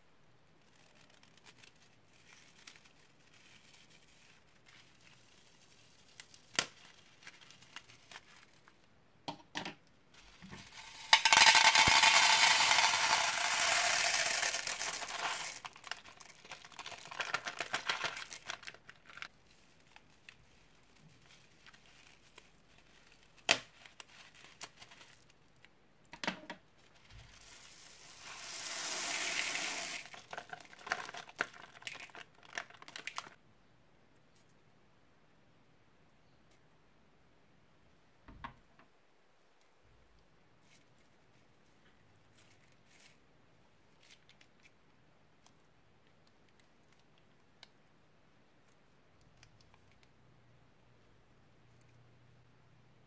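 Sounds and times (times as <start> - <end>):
plastic bags crinkling: 10.4 - 25.3, 26.8 - 33.4
foam beads pouring into a bowl: 10.6 - 18.7, 27.2 - 33.3.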